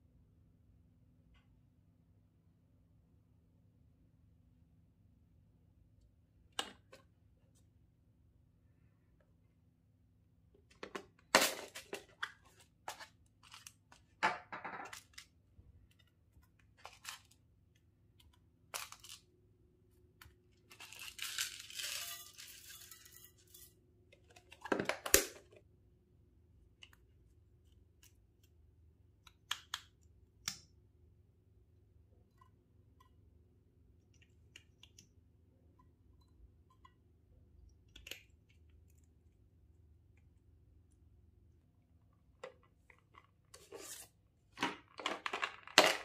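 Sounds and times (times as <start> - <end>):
beads pouring into glass bowl: 20.9 - 23.4.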